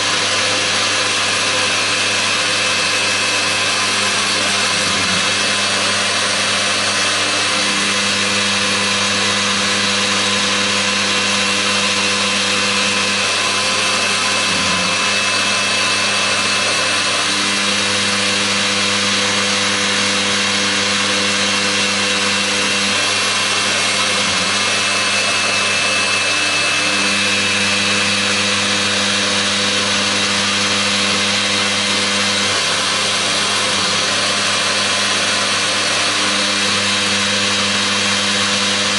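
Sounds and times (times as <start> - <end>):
lathe milling tool whirring: 0.0 - 38.9.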